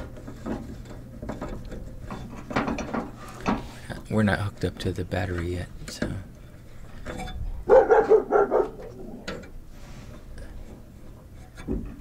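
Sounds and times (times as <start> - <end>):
dog barking: 7.7 - 9.2.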